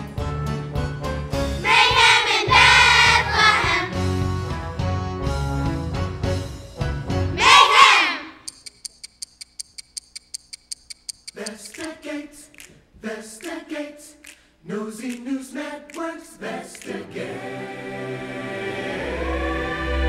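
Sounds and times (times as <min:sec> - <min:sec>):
children's choir singing: 0:01.6 - 0:04.0, 0:07.4 - 0:08.5, 0:14.7 - 0:20.0
rapid even ticking: 0:08.4 - 0:12.7.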